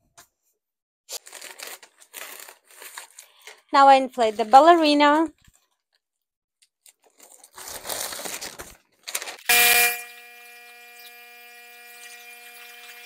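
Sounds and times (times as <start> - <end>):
steady pitched hum: 9.5 - 13.0.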